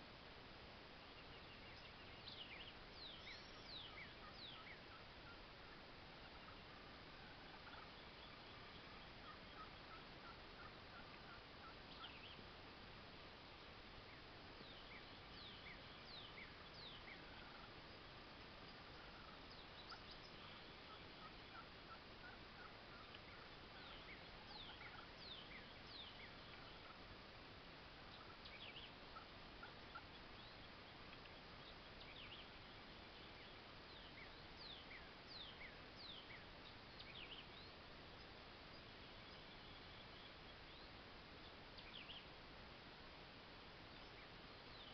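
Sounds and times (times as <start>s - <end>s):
low hiss: 0.0s - 44.9s
small birds chirping: 0.0s - 44.9s
turkey gobbling: 3.4s - 12.5s, 14.7s - 27.1s, 28.0s - 30.2s.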